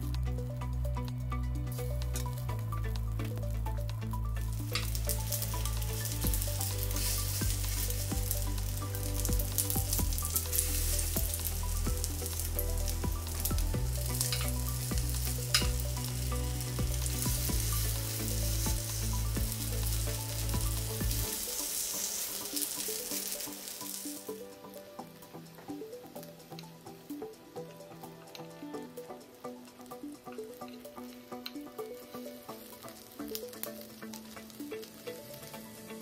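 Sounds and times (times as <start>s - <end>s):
background music with bass line: 0.0s - 36.0s
food sizzling in oil: 4.2s - 26.0s, 32.0s - 36.0s.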